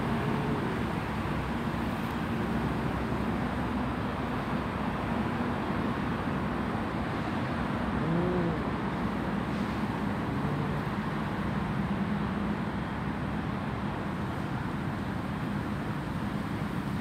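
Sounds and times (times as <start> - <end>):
cat growling: 8.0 - 8.7
cat moaning: 8.0 - 8.8.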